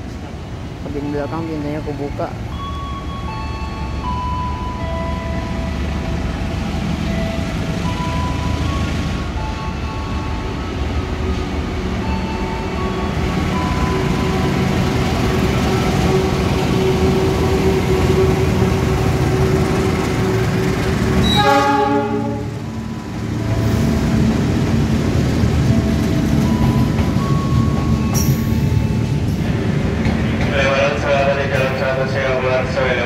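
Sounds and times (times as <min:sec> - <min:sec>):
locomotive engine running: 0:01.9 - 0:33.0
train horn: 0:21.1 - 0:22.6.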